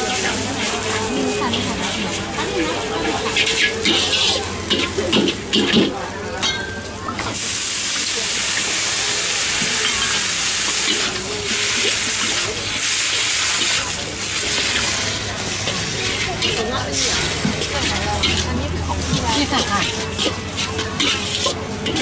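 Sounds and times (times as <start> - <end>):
noodles sizzling in a wok: 0.0 - 22.0.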